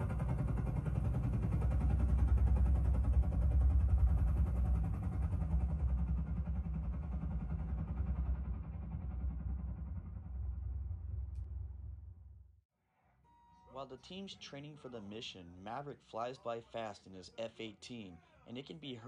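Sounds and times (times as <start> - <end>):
helicopter rotor chop: 0.0 - 11.9
deep rumble: 0.0 - 12.6.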